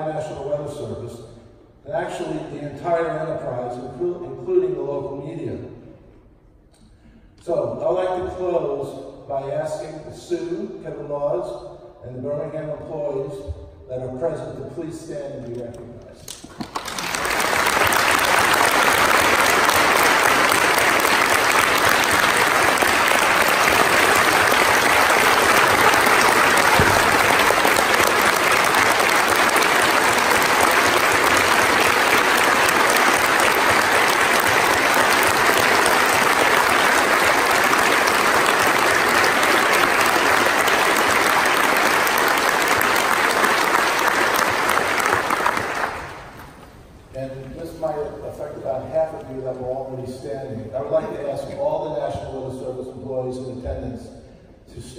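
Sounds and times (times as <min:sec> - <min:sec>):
audience applause: 0:16.3 - 0:46.6.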